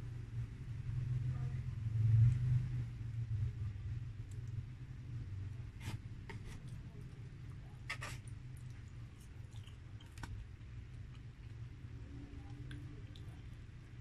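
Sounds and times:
steady low hum: 0.0 - 14.0
chewing crunches and mouth clicks: 8.2 - 14.0.

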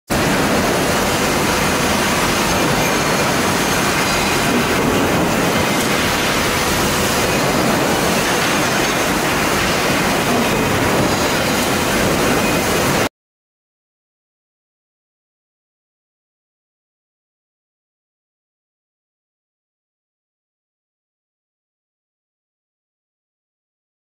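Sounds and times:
factory press line din: 0.1 - 13.1.

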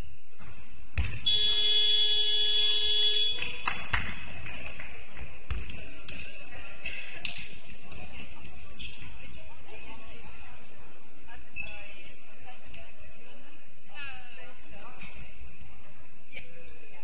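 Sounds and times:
basketball bouncing on court: 1.0 - 1.7.

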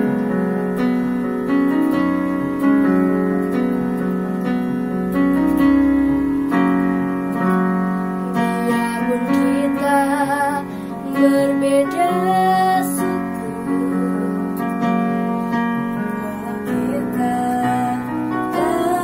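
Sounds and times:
electronic keyboard piano chords: 0.0 - 19.0.

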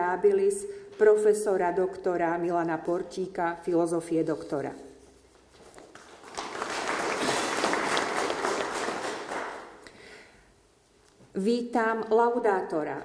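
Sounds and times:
audience applauding: 5.9 - 9.8.

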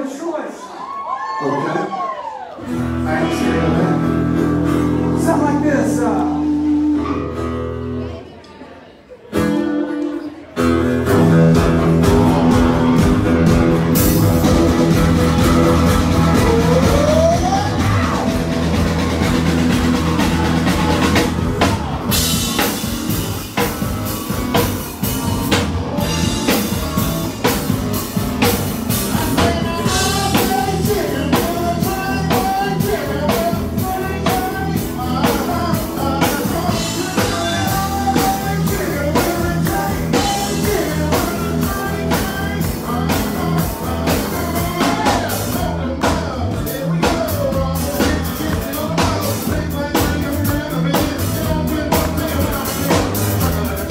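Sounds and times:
guitars and bass: 2.6 - 8.3, 9.3 - 53.9
drum kit steady beat: 11.1 - 53.9.

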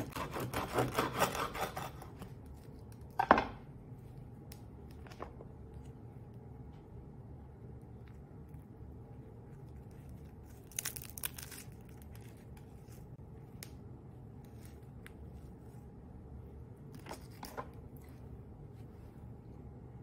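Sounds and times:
bread crust crackling and rustling: 7.7 - 16.1.

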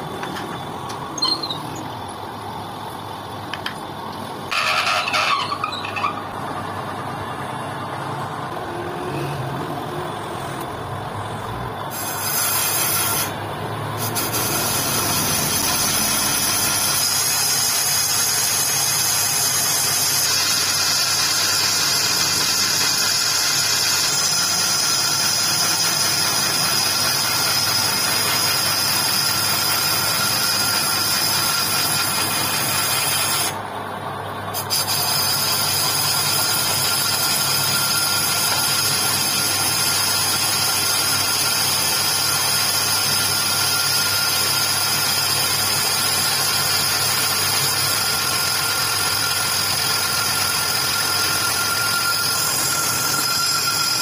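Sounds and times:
lathe machine hum: 0.0 - 34.6, 35.2 - 54.0
high ringing of tool cutting metal: 1.2 - 1.8, 4.5 - 6.3, 11.9 - 13.4, 14.0 - 33.6, 34.6 - 54.0.

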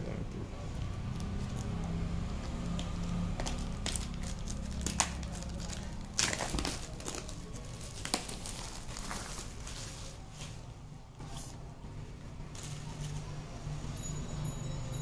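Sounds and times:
plastic wrap crinkling and tearing: 1.0 - 10.7.

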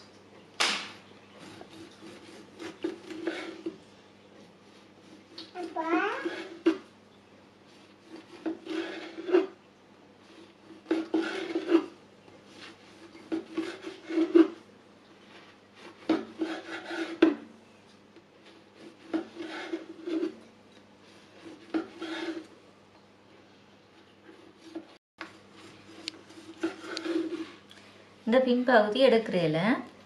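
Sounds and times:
knife sawing through bread: 1.4 - 3.7, 6.1 - 6.8, 7.7 - 9.6, 10.3 - 14.6, 15.8 - 17.3, 18.7 - 20.4, 21.1 - 22.5, 24.4 - 27.6.

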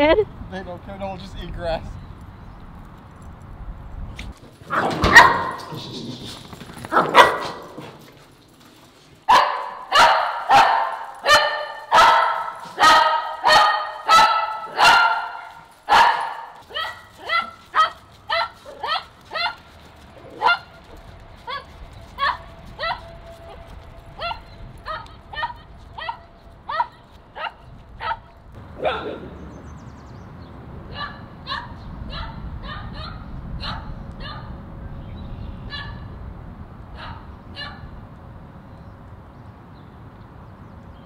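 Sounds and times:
dog barking: 4.7 - 5.6, 6.9 - 7.8, 9.3 - 19.6, 20.4 - 20.7, 24.2 - 29.2, 30.9 - 34.5, 35.7 - 36.0, 37.0 - 37.8.

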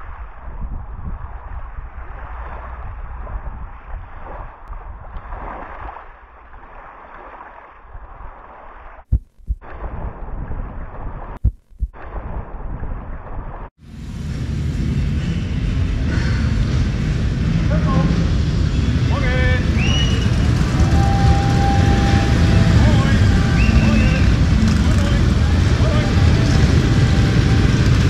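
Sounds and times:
wind buffeting microphone: 0.0 - 6.7
waves washing against bank: 19.1 - 28.0.

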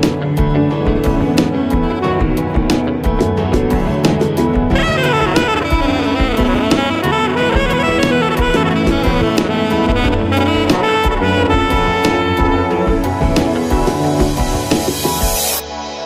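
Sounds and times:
drum kit: 0.0 - 16.0
saxophone melody: 1.2 - 2.6, 4.6 - 14.8.

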